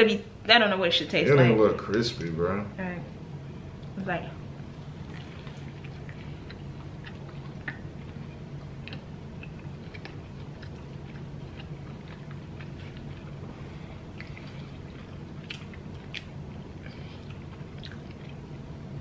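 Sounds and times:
steady low hum: 0.0 - 19.0
close chewing: 5.0 - 18.5.

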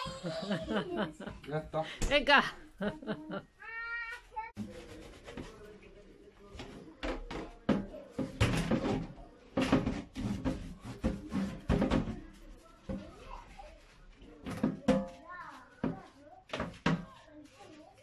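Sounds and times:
shelves knocking against metal sink: 7.0 - 12.3.

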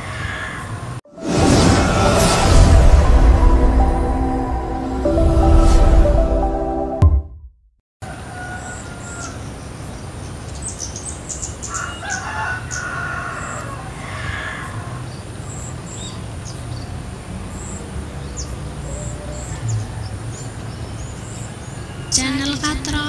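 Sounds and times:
rooster crowing: 8.0 - 9.4, 11.7 - 14.7.

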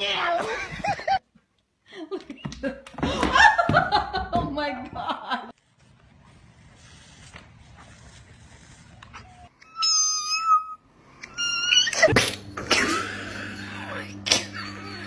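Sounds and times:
cat meowing: 9.6 - 12.1
steady low hum: 10.9 - 15.0.

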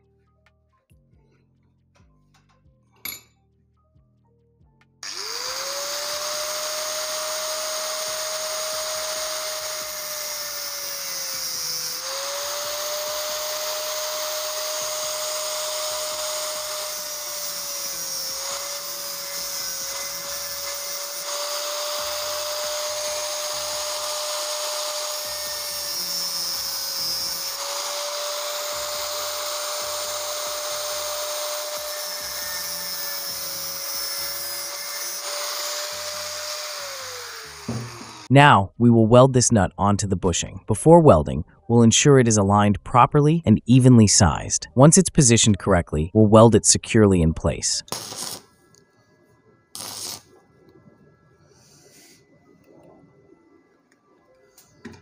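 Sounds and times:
angle grinder cutting steel: 5.0 - 38.3, 47.9 - 48.5, 49.8 - 50.3.

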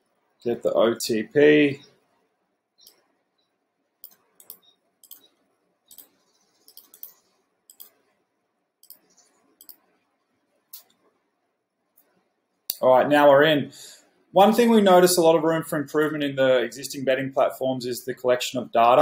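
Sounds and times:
computer mouse clicking: 2.8 - 8.1, 8.8 - 10.0
keyboard clicking: 4.0 - 8.0.

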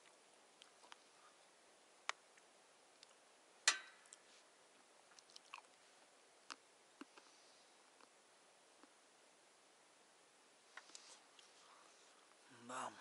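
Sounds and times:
crunching and chewing snack: 0.0 - 1.1, 5.1 - 5.8.

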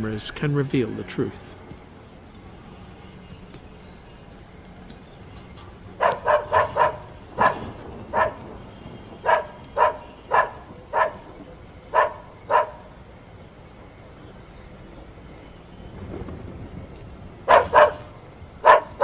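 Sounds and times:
dog barking: 6.0 - 8.5, 9.2 - 12.9, 17.5 - 19.0.

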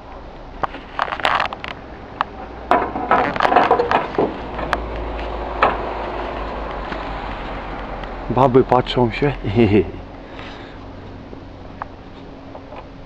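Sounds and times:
steady low hum: 0.0 - 13.0
roof tiles knocking and scraping: 2.7 - 7.0.

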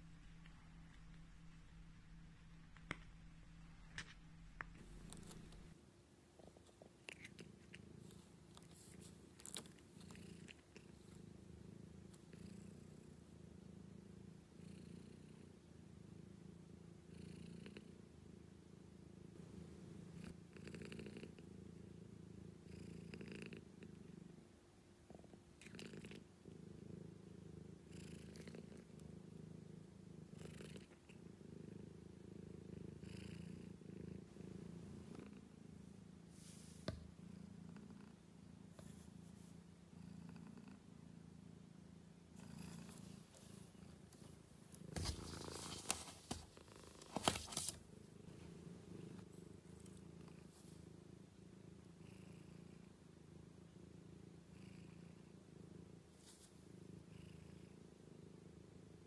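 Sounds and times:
rustling: 0.0 - 5.8, 42.7 - 49.3
cat purring: 0.0 - 59.0.

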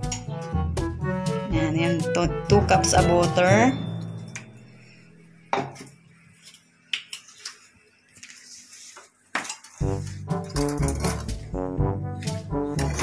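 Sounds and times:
background music: 0.0 - 5.6, 9.8 - 13.0.

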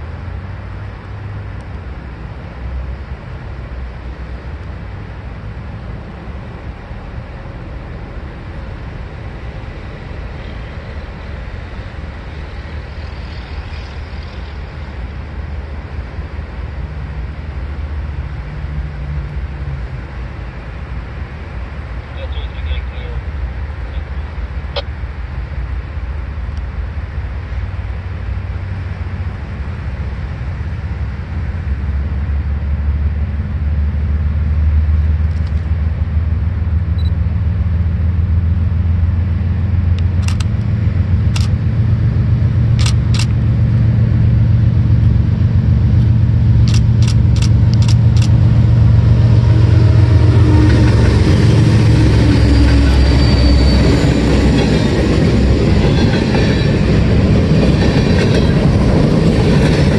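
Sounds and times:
steel wheels rushing on rails: 0.0 - 22.4, 23.0 - 59.9
diesel locomotives rumbling: 0.0 - 59.9
sharp clicks: 40.0 - 40.7, 42.8 - 43.4, 46.6 - 48.4.

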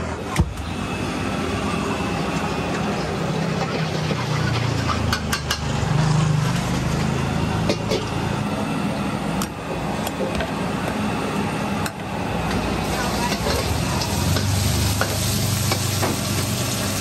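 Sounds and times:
hot oil sizzling in a wok: 12.4 - 17.0.

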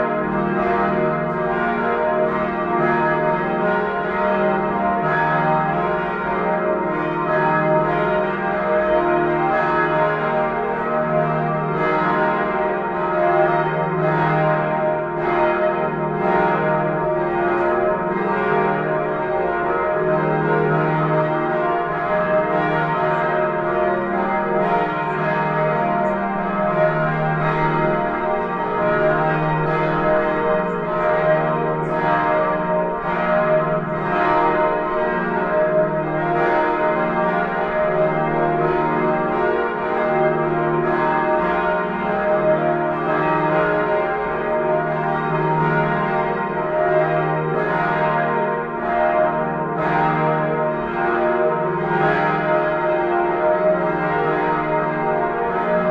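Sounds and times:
church bells ringing: 0.0 - 55.9.

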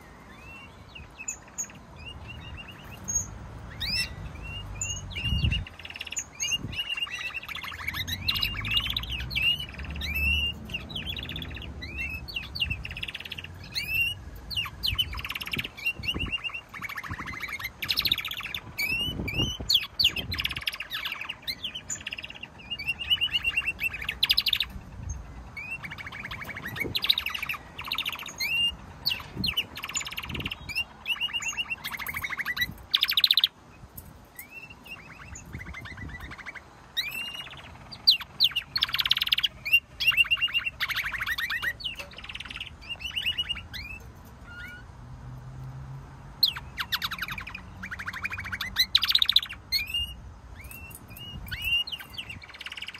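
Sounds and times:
canaries singing: 0.0 - 52.9.

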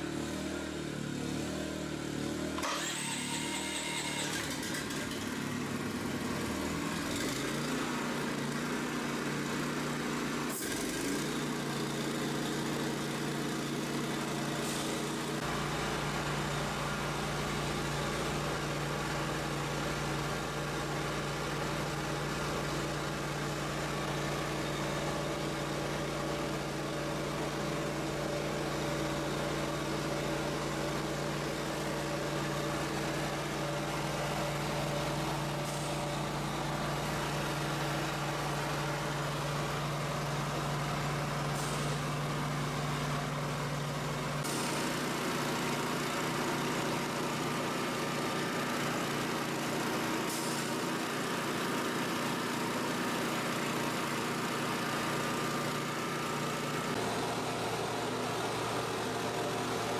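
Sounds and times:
small gasoline engine starting: 0.0 - 15.8, 44.1 - 54.6.

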